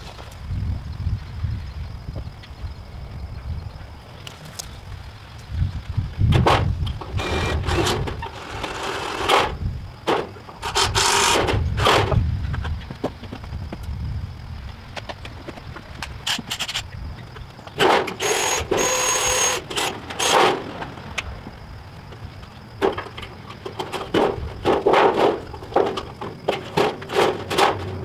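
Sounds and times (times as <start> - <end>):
boards and tools knocking: 22.8 - 28.0.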